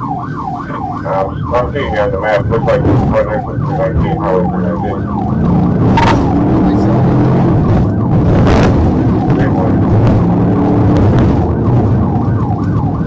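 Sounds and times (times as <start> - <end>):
police siren yelping: 0.0 - 13.0
tyres on dirt road: 0.0 - 13.0
car engine accelerating: 0.2 - 13.0.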